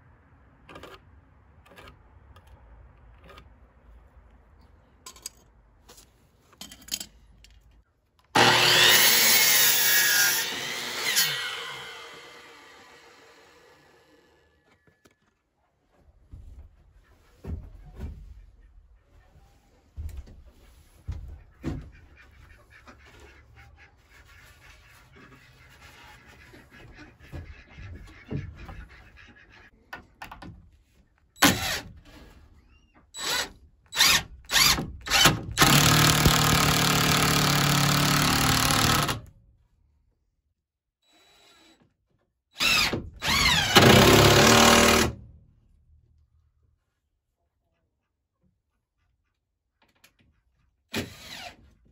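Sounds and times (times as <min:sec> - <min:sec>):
cordless drill driving screws: 0:31.4 - 0:31.9, 0:33.2 - 0:39.2, 0:42.6 - 0:45.2, 0:50.9 - 0:51.6.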